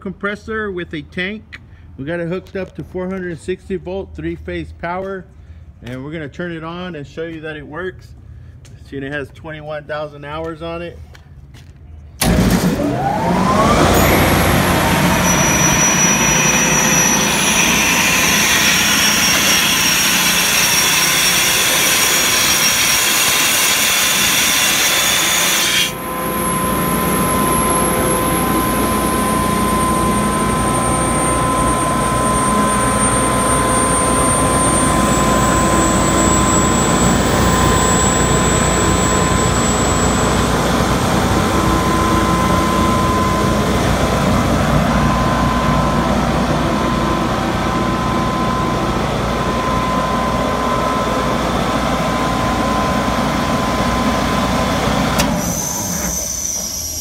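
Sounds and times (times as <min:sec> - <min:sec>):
air compressor humming and whining: 0:12.2 - 0:57.0
air compressor hissing: 0:14.0 - 0:26.1.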